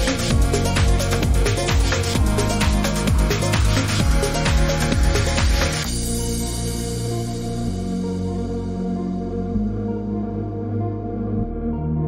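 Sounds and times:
electronic drum beat: 0.0s - 6.7s
held synth chords: 0.0s - 12.0s.

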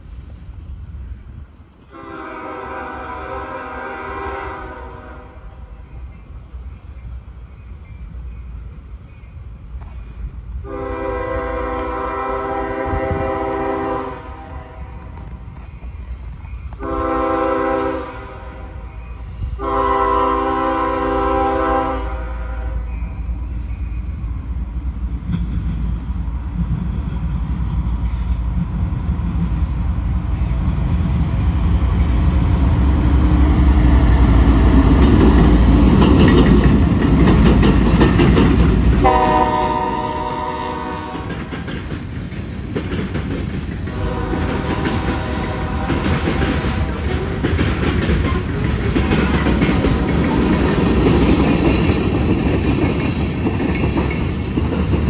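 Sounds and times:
train rumbling and rail clatter: 0.0s - 55.0s
locomotive air horn: 1.9s - 5.6s, 10.6s - 14.9s, 16.8s - 18.9s, 19.6s - 22.9s, 39.0s - 41.4s, 43.9s - 47.0s.

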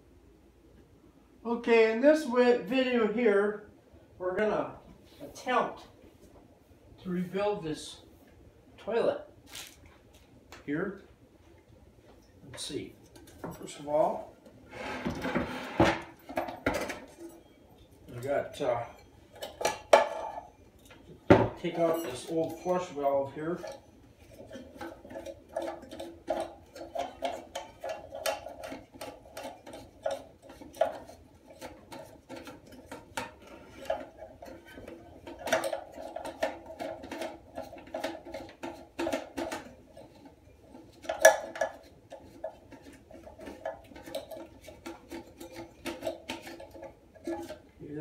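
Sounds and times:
plastic parts knocking in toilet tank: 24.4s - 47.7s.

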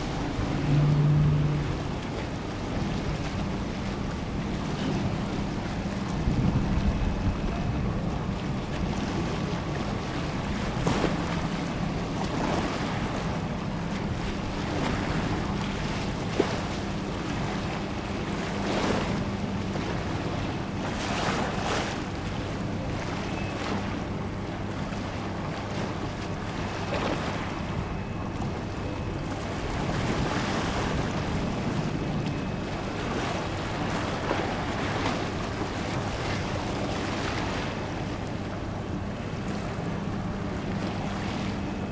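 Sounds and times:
wind buffeting microphone: 0.0s - 15.9s
steady low hum: 0.0s - 41.9s
water lapping: 0.0s - 41.9s.

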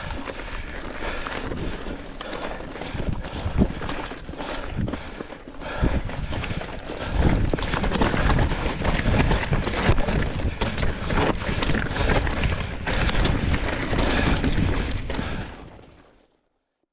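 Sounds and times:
wind buffeting microphone: 0.0s - 15.5s
bike knocks and rattles: 0.0s - 16.1s
tyres crunching over gravel: 0.0s - 16.3s.

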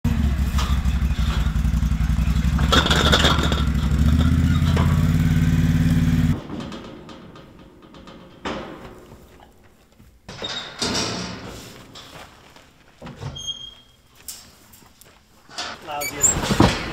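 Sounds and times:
vehicle engine running: 0.0s - 6.4s
rattle: 0.1s - 9.4s.

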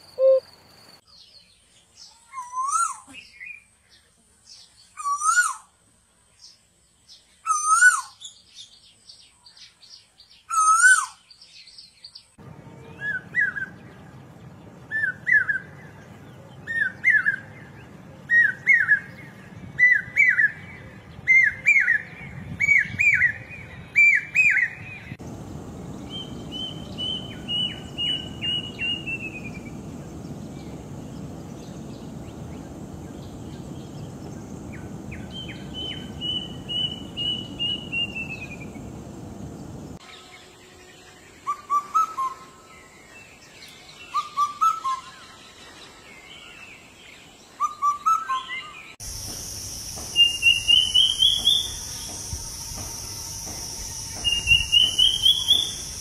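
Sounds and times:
cuckoo descending whistled notes: 0.2s - 0.4s, 52.7s - 56.0s
hawk-cuckoo rising phrases: 0.2s - 0.4s
koel calling: 0.2s - 0.4s
background hiss: 25.1s - 44.2s, 48.8s - 56.0s.

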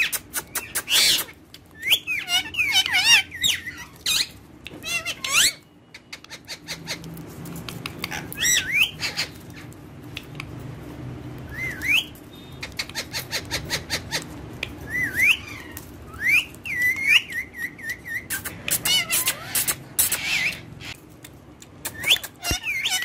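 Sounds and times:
parakeet whistling: 0.4s - 6.7s, 11.5s - 14.2s, 14.9s - 20.7s.

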